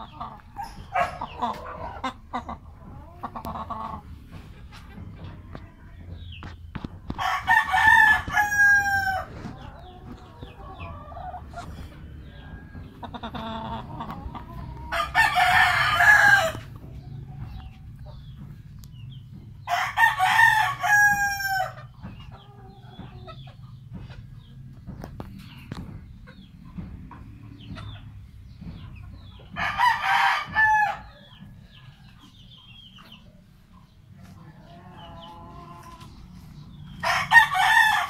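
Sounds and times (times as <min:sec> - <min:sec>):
roosters crowing: 0:00.0 - 0:04.4, 0:05.0 - 0:18.5, 0:19.5 - 0:23.5, 0:29.2 - 0:32.2, 0:34.0 - 0:38.0
chickens clucking: 0:00.0 - 0:38.0.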